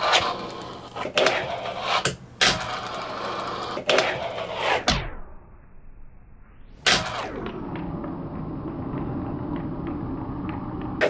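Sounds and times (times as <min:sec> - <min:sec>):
small wheels rolling on a desk: 0:00.0 - 0:04.7, 0:07.0 - 0:11.0.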